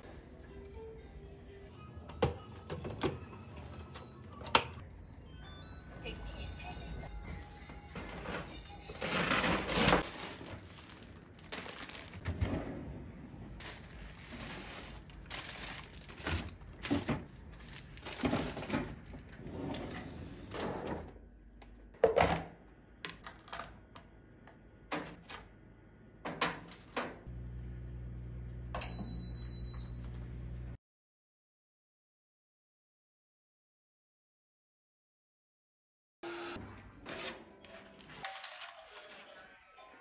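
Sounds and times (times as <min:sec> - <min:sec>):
plastic packaging rustling: 0:08.9 - 0:12.3, 0:13.6 - 0:19.4, 0:37.9 - 0:39.4
items knocking and clattering: 0:13.6 - 0:19.3, 0:21.9 - 0:23.8
short electronic appliance beep: 0:28.7 - 0:30.2.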